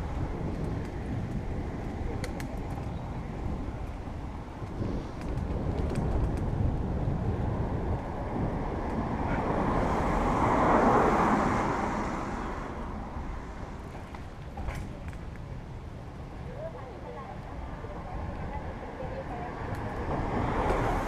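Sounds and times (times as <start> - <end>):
wind rumble on microphone: 0.0 - 21.0
car passing: 6.8 - 14.5, 17.6 - 21.0.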